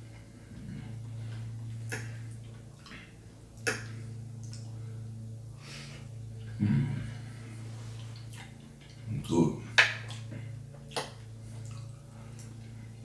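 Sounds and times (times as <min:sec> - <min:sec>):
low electrical hum: 0:00.0 - 0:13.0
sharp mouth clicks: 0:01.8 - 0:02.2, 0:03.6 - 0:04.6, 0:10.9 - 0:11.9
person humming mm: 0:06.6 - 0:07.2
person chewing: 0:08.0 - 0:09.1.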